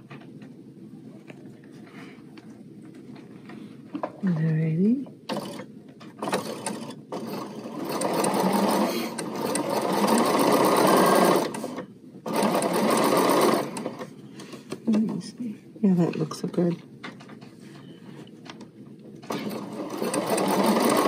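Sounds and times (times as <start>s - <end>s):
sewing machine stitching: 5.3s - 14.1s, 19.2s - 21.0s.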